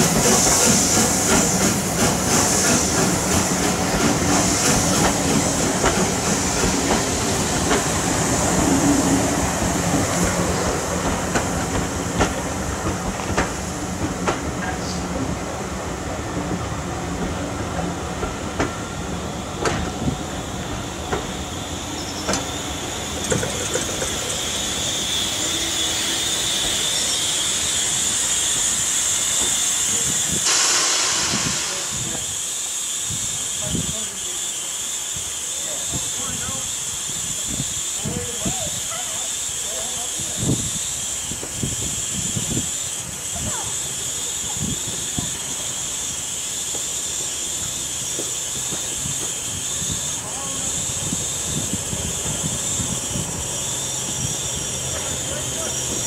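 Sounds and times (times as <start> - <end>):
steam hissing: 0.0 - 56.0
train coaches rolling past: 0.0 - 56.0
train wheel clicks: 0.1 - 8.1, 11.0 - 14.7, 22.2 - 24.7, 44.4 - 56.0.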